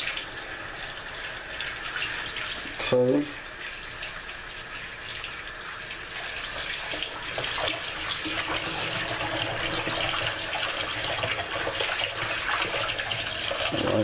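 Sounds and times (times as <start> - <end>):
tap running into bowl: 6.5 - 10.4.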